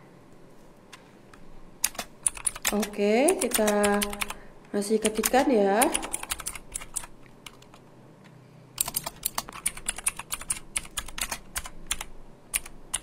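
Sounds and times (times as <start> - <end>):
keyboard keys clicking: 1.8 - 4.4, 5.0 - 7.8, 8.8 - 13.0.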